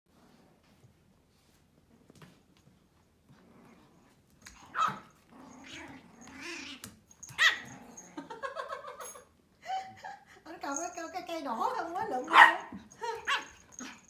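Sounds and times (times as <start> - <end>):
dog yipping: 4.7 - 5.1, 7.2 - 7.8, 12.3 - 14.0
dog growling: 5.3 - 8.5.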